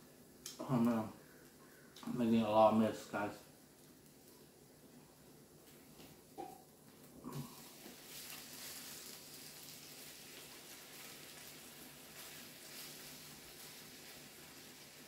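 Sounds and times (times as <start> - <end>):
food sizzling on a grill: 7.3 - 15.0.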